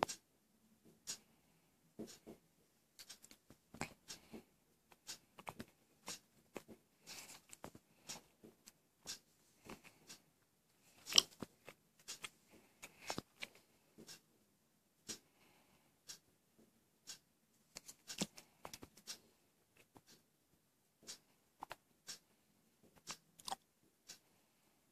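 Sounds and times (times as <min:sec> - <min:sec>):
smartphone being handled: 0:10.9 - 0:14.1, 0:17.8 - 0:19.1.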